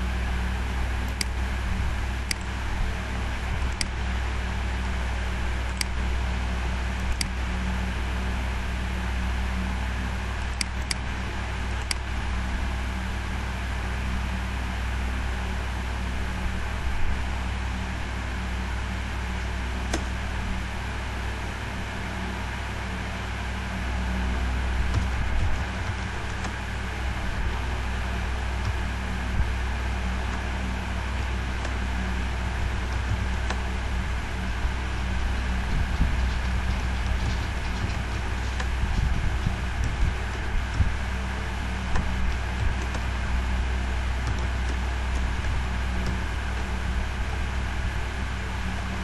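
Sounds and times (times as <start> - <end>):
low hum and hiss: 0.0 - 49.0
computer mouse clicking: 1.0 - 1.4, 2.2 - 2.5, 3.7 - 4.0, 5.7 - 6.0, 7.1 - 7.4, 10.4 - 11.1, 44.2 - 45.3
sharp click: 2.3 - 2.5.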